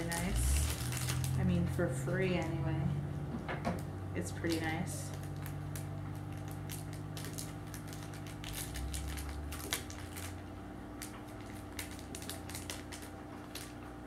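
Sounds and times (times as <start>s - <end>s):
plastic bag crinkling: 0.0s - 1.8s, 4.4s - 14.0s.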